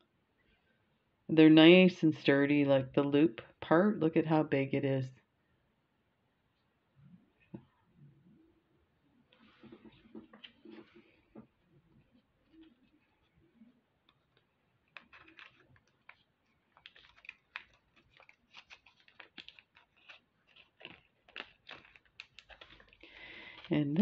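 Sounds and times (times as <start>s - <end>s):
plastic bag crinkling: 14.2s - 24.0s.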